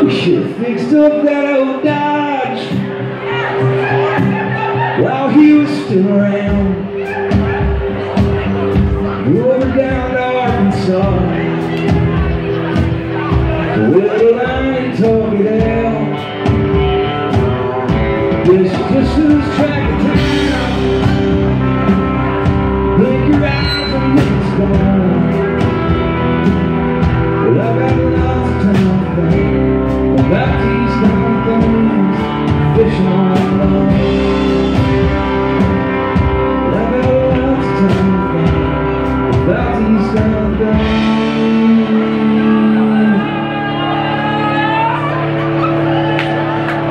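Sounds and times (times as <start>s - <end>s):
man singing into a microphone: 0.0s - 2.9s, 3.8s - 7.6s, 9.1s - 11.8s, 13.6s - 16.5s, 18.4s - 21.3s, 22.8s - 25.9s, 27.4s - 34.9s, 36.5s - 44.6s.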